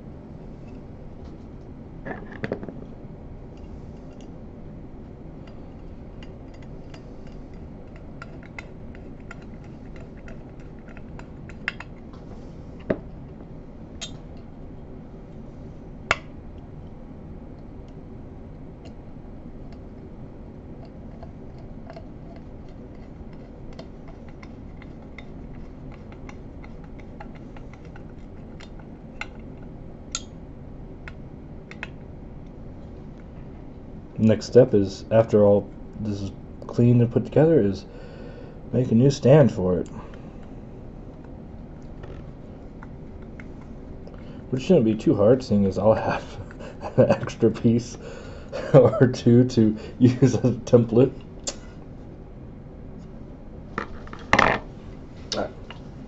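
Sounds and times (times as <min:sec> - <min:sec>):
steady low hum: 0:00.0 - 0:56.0
screwdriver clicking on metal parts: 0:06.2 - 0:12.0.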